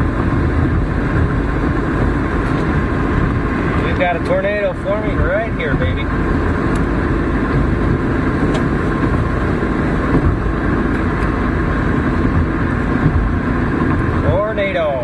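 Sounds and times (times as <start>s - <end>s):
car tyre and engine noise: 0.0s - 15.0s.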